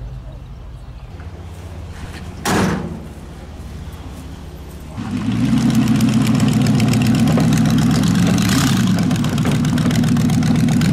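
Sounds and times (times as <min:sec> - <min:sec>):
engine idling loudly: 0:04.9 - 0:10.9.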